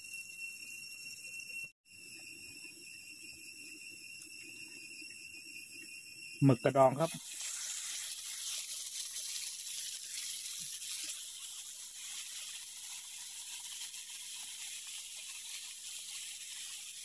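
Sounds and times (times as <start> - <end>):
seafood sizzling in butter: 6.8 - 17.0.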